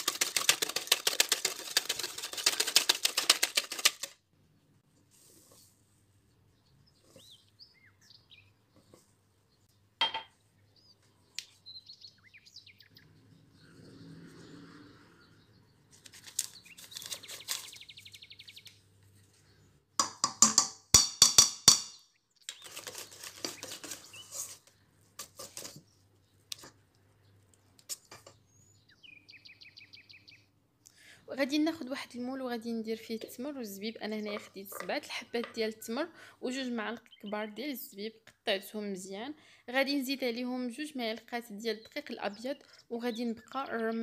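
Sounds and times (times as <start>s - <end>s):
birds chirping faintly: 6.0s - 20.0s, 21.9s - 38.0s.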